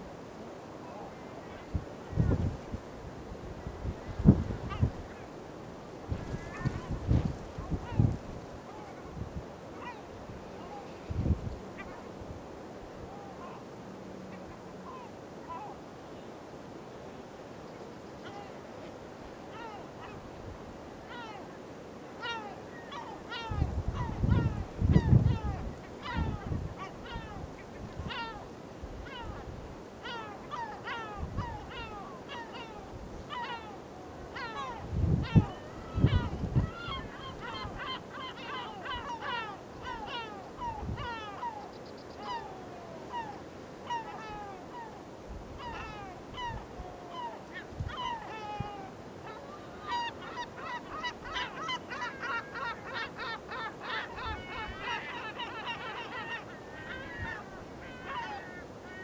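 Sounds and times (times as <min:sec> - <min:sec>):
gulls calling: 0:22.2 - 0:45.0, 0:45.6 - 0:59.0.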